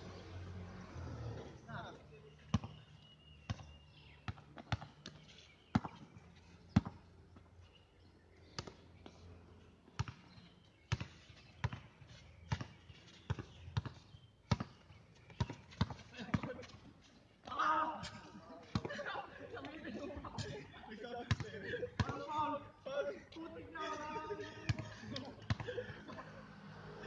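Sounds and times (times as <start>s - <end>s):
basketball bouncing on hard court: 4.3s - 5.1s, 5.7s - 6.0s, 6.7s - 7.0s, 10.0s - 11.9s, 12.5s - 16.6s, 21.3s - 22.2s.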